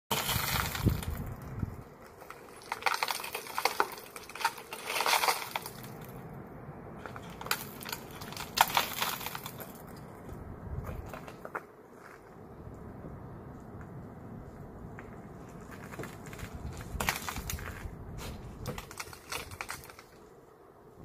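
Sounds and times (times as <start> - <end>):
shattered glass crunching: 0.1 - 1.3, 2.1 - 6.2, 7.0 - 10.1, 15.8 - 17.9, 18.7 - 20.2.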